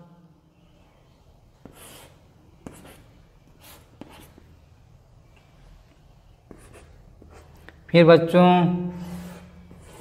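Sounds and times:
chalk scratching on blackboard: 1.6s - 4.5s, 6.5s - 7.7s, 9.0s - 10.0s
chalk tapping: 1.6s - 4.5s, 6.4s - 7.8s.

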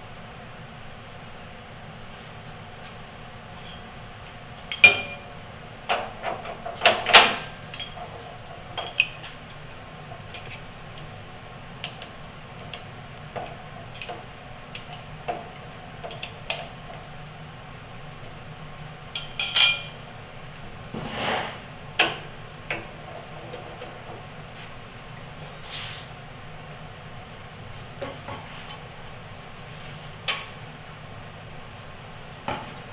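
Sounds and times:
metal clinks and knocks: 3.6s - 4.0s, 19.2s - 20.2s.

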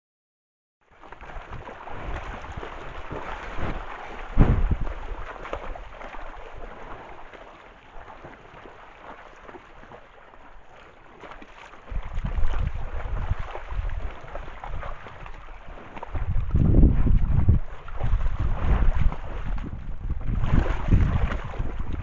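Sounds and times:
animal wading and splashing in water: 0.8s - 22.0s
wind buffeting the microphone: 1.5s - 5.3s, 11.9s - 22.0s.

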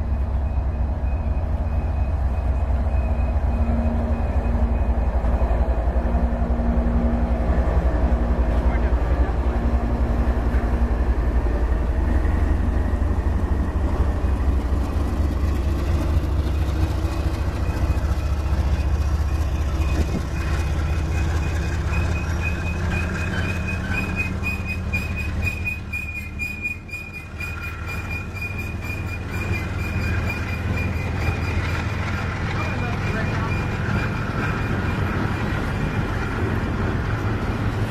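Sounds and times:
diesel locomotive engine drone: 0.0s - 37.9s
freight cars rolling by: 0.0s - 37.9s
high squeal: 17.6s - 36.4s.

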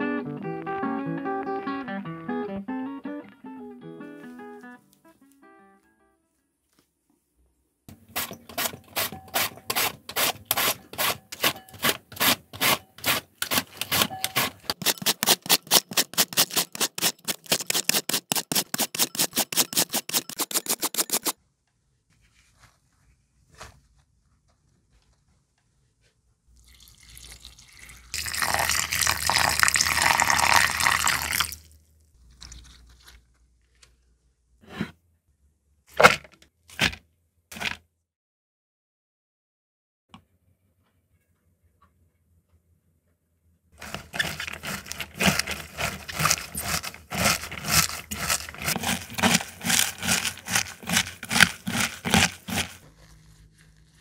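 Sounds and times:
cabbage rustling: 8.0s - 21.4s, 43.8s - 54.0s
knife cutting on wooden board: 8.1s - 21.4s, 43.8s - 52.8s.

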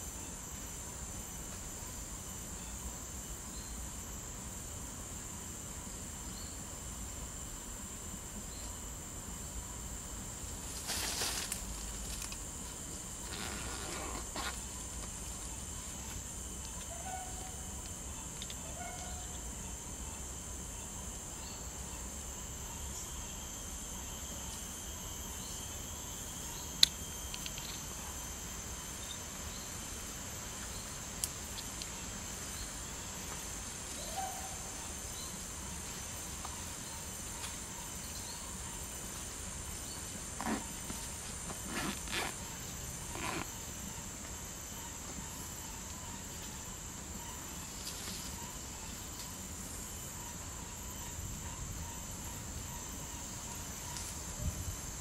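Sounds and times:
insects droning: 0.0s - 55.0s.

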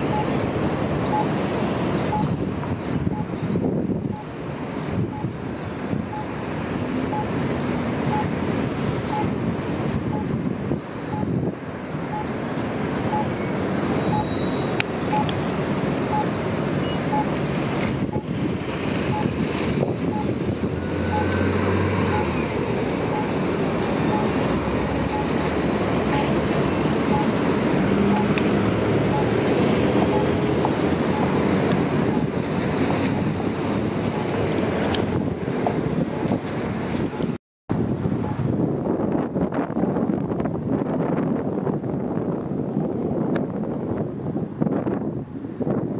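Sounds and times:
repeating electronic beep: 0.0s - 0.4s, 1.1s - 1.3s, 2.1s - 2.3s, 6.1s - 6.3s, 9.1s - 9.3s, 12.1s - 15.3s, 19.1s - 19.3s, 21.1s - 21.4s, 22.1s - 22.4s, 23.1s - 23.4s, 24.1s - 24.4s, 25.1s - 25.4s, 27.1s - 27.4s, 28.1s - 28.3s, 29.1s - 29.3s, 30.1s - 30.4s, 31.1s - 31.3s
street traffic: 0.0s - 45.9s
bus driving past: 19.8s - 35.6s.

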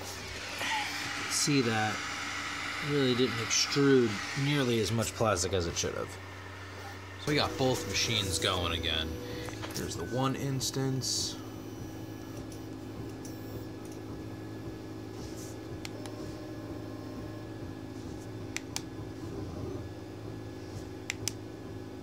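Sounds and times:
three d printers humming: 0.0s - 22.0s
sharp clicks: 21.1s - 21.4s.

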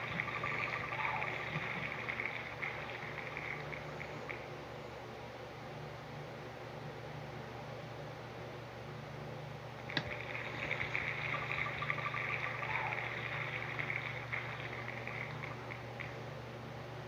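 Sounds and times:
steady low hum: 0.0s - 17.0s
spinning wheel ticking: 9.9s - 16.2s.

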